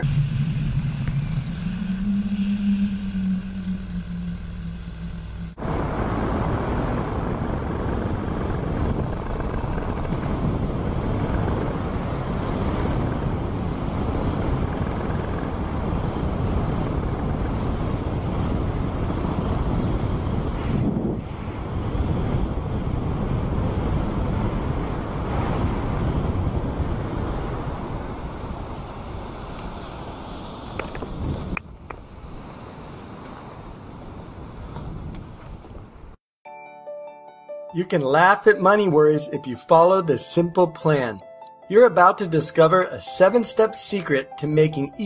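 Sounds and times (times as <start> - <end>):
paramotor engine droning: 0.0 - 31.6
wind noise: 0.0 - 36.2.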